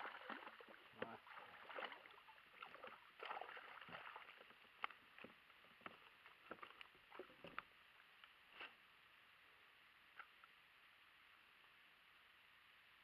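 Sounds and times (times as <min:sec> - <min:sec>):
faint water splashing: 0:00.0 - 0:08.8.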